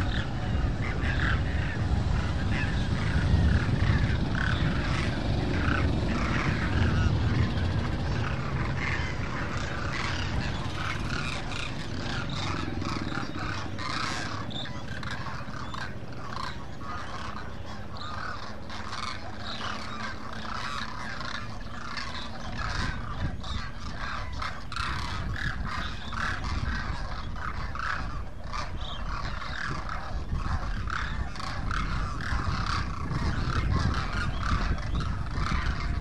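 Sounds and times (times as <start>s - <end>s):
flock of cranes calling: 0.0s - 36.0s.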